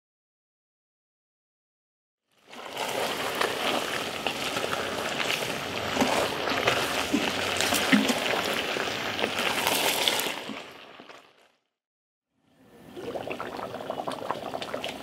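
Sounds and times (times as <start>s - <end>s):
rushing water-like noise: 2.5s - 10.7s.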